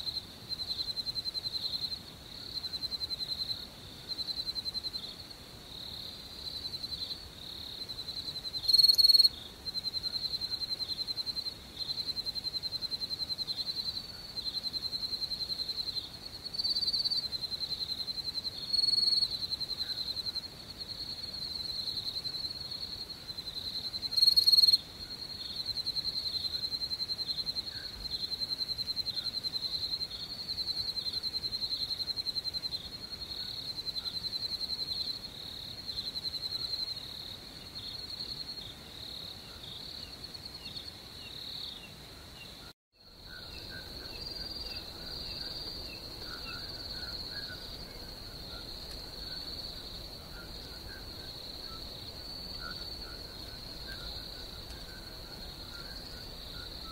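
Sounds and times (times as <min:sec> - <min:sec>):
crickets chirping: 0:00.0 - 0:56.9.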